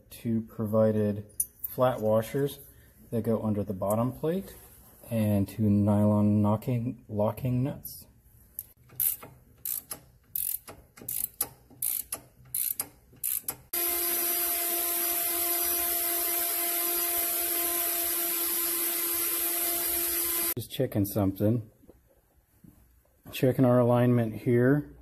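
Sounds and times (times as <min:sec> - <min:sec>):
ratchet wrench clicking: 0:08.6 - 0:13.7.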